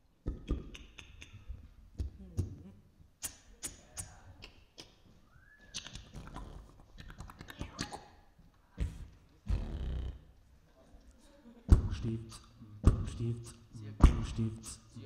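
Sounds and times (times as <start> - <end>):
vocal percussion clicks and pops: 0.2 - 2.6, 3.2 - 5.0, 5.7 - 8.2.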